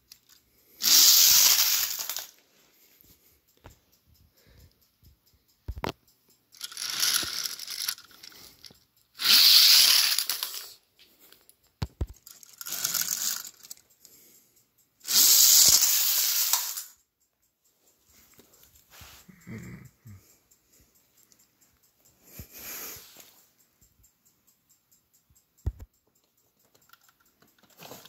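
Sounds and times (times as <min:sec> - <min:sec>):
toy cars rattling along plastic track: 0:00.0 - 0:02.7, 0:05.8 - 0:17.1, 0:26.2 - 0:28.0.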